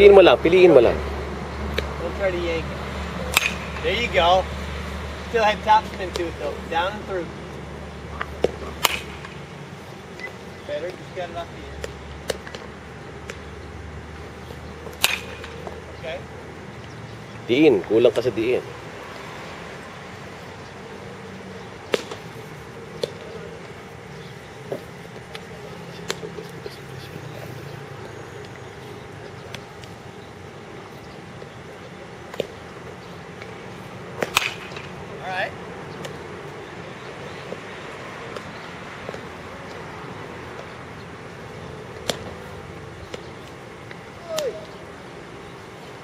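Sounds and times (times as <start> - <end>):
steady background hum: 0.0 - 46.0
baseball bats cracking balls: 1.7 - 46.0
metal bat hitting ball: 3.3 - 4.0, 8.4 - 9.4, 14.9 - 15.7, 21.9 - 22.2, 34.2 - 35.0.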